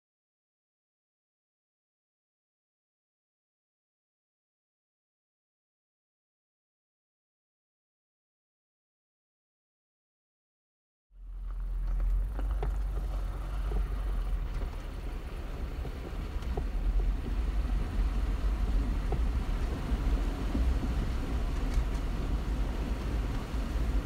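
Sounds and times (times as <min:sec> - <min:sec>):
engine and road rumble: 0:11.2 - 0:24.0.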